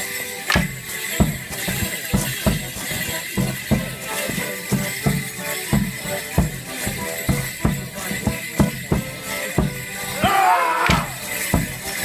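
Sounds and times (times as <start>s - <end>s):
person shouting: 10.2s - 11.2s.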